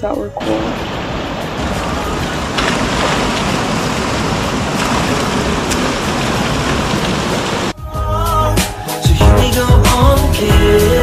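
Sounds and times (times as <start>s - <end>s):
water spilling over rocks: 0.6s - 7.7s.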